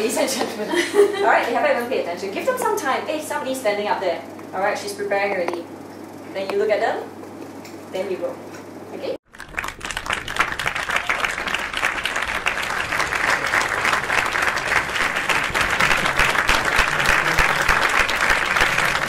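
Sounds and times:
crowd applause: 9.3 - 19.0.

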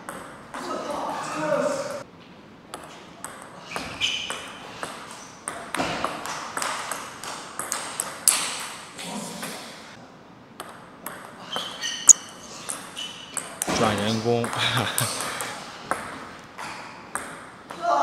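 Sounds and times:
ping pong ball hitting bats: 0.0 - 1.1, 2.7 - 9.6, 10.6 - 11.8, 12.6 - 18.0.

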